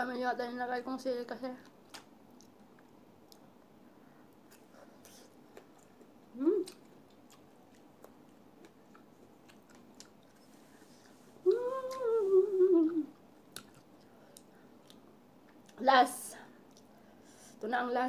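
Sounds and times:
chewing and mouth clicks: 1.6s - 3.6s, 4.3s - 10.5s, 13.5s - 15.8s, 16.6s - 17.0s
woman humming while eating: 6.3s - 6.8s, 11.4s - 13.2s.

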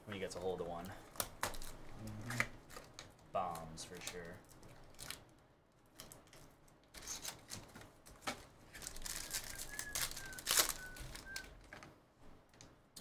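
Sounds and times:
plastic wrapper crinkling: 1.0s - 11.9s
plastic wrapper tearing: 1.1s - 5.3s, 5.9s - 11.9s.

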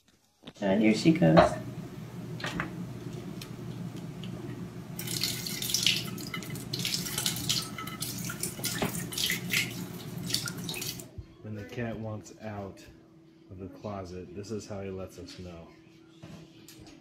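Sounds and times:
water splashing into glass dish: 5.0s - 11.0s.

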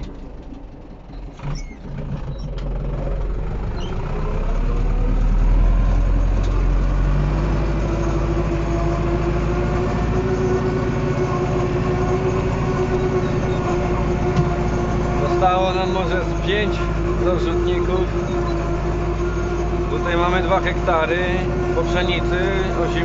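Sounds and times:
tractor engine running: 0.0s - 23.0s.

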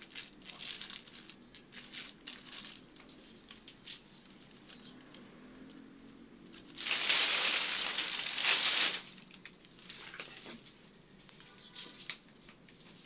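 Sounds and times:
plastic sacking rustling: 0.0s - 4.0s, 6.5s - 10.6s.

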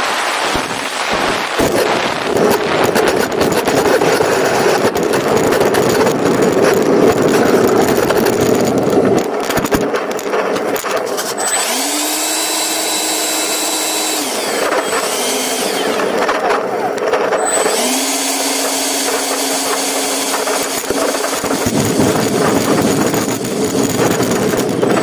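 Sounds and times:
rushing air: 0.0s - 9.4s, 19.2s - 25.0s
ducted fan whine: 0.0s - 25.0s
wheels rumbling on asphalt: 0.0s - 25.0s.

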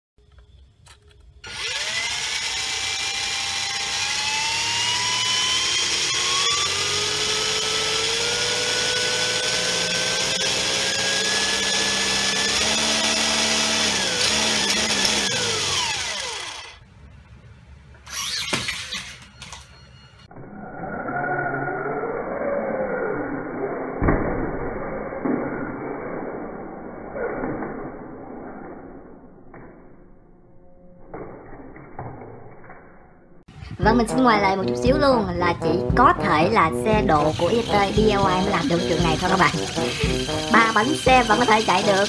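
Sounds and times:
electric motor whine: 1.4s - 16.8s, 37.0s - 42.0s
toy car running on fabric: 37.2s - 42.0s.

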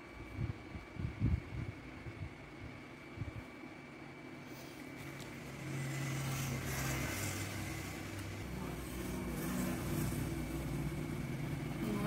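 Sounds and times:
vehicle engine hum: 4.9s - 12.0s.

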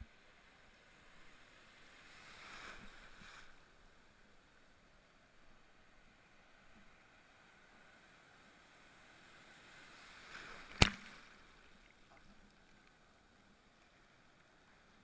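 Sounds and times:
shallow surf washing: 1.0s - 4.2s.

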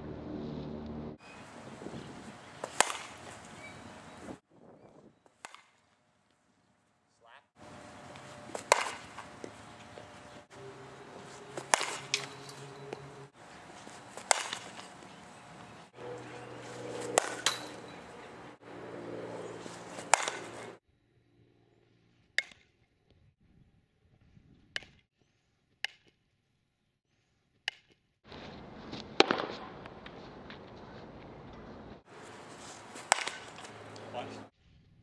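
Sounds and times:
bat striking softballs: 2.2s - 4.2s, 5.3s - 5.9s, 7.6s - 18.6s, 19.6s - 20.8s, 22.4s - 22.8s, 29.0s - 30.1s, 32.1s - 34.5s.

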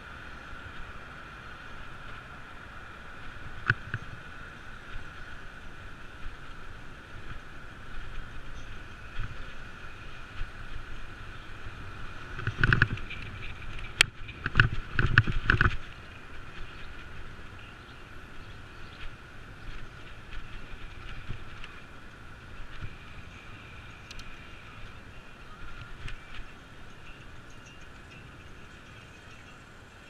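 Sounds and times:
bicycle road noise: 0.0s - 30.0s.

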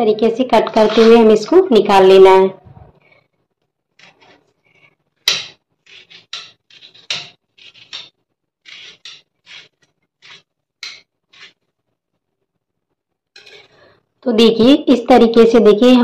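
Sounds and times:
knife cutting watermelon rind: 4.0s - 11.6s.

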